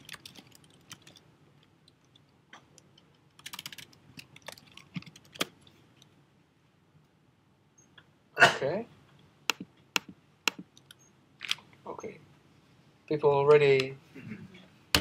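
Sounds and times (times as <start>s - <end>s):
computer keyboard typing: 0.0s - 1.2s, 2.8s - 5.6s.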